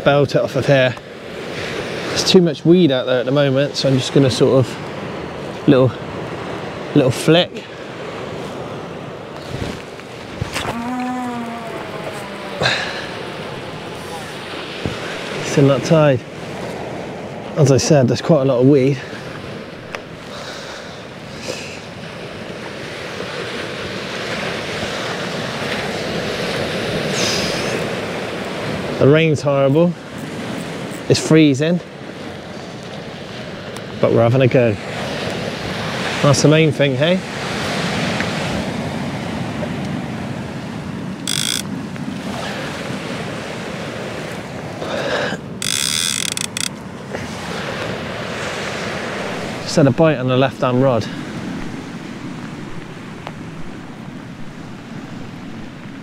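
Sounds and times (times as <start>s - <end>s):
sea surf washing on shore: 0.0s - 56.0s
wind on microphone: 8.2s - 17.4s
short noisy bursts: 41.3s - 41.7s.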